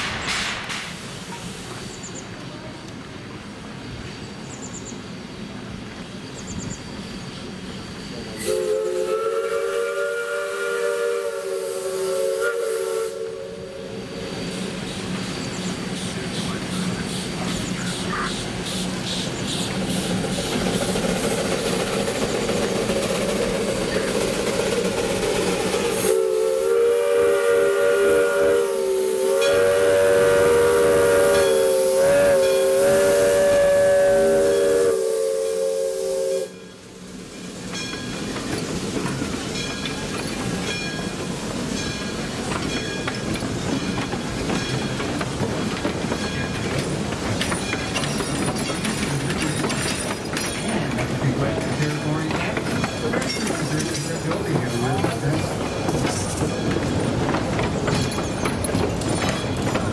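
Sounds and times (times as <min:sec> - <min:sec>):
steam hiss: 0:00.0 - 0:59.9
train running rumble: 0:00.0 - 0:59.9
steam locomotive whistle: 0:08.3 - 0:14.2, 0:25.8 - 0:36.8.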